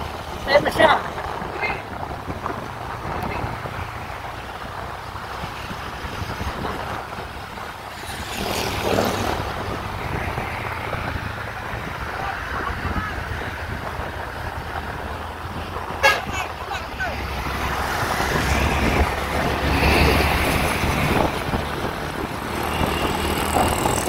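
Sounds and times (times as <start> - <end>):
vehicle engine hum: 0.0 - 24.0
wind buffeting microphone: 0.0 - 24.0.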